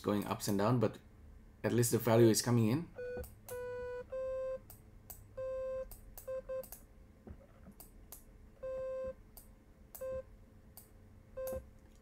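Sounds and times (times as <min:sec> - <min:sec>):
soft clicks: 0:05.9 - 0:06.9, 0:09.3 - 0:10.1.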